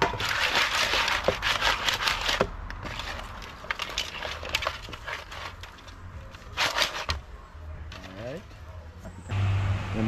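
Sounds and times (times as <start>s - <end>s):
crab shells clattering in metal bowl: 0.0s - 7.2s.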